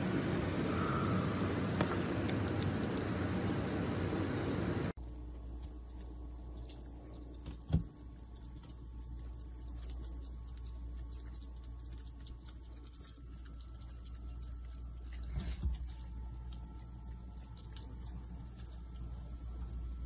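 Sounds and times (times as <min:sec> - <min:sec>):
faint low hum: 0:00.0 - 0:20.0
marmoset squeaking: 0:07.7 - 0:08.6, 0:12.9 - 0:13.2.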